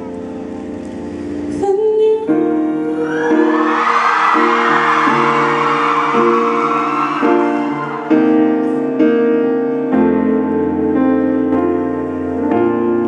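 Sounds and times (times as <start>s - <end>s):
piano chords on keyboard: 0.0s - 13.0s
audience screaming and cheering: 2.8s - 9.0s.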